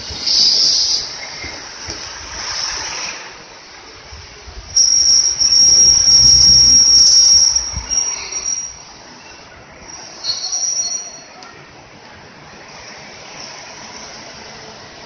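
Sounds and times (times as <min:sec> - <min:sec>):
tram wheels squealing on rails: 0:00.0 - 0:03.5, 0:04.7 - 0:11.8.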